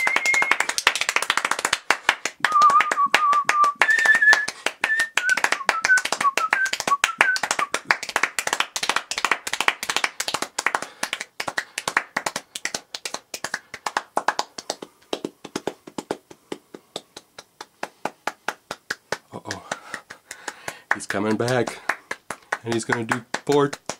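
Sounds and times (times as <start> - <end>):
fast hand clapping: 0.0 - 23.9.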